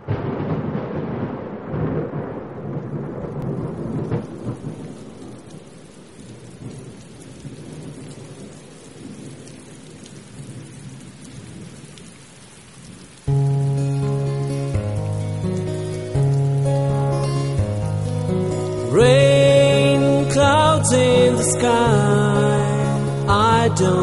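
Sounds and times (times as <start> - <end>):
thunder rumble: 0.0 - 12.2
heavy rain on metal roof: 0.0 - 24.0.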